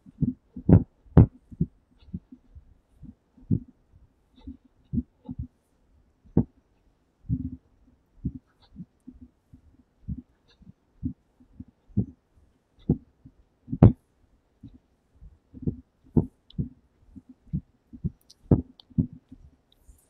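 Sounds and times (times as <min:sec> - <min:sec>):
footsteps as dull thumps: 0:17.5 - 0:19.2.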